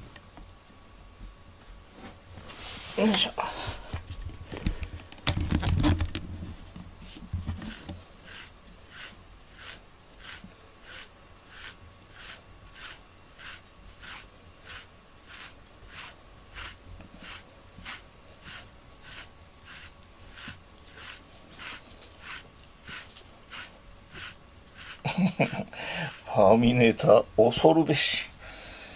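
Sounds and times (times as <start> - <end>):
brush raking through cat fur: 1.6 - 3.3, 7.0 - 26.7.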